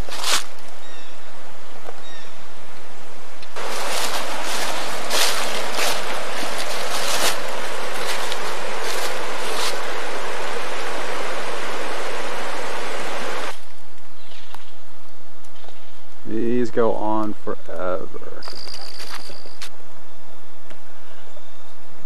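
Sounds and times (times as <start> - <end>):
stream water rushing: 3.6 - 13.5.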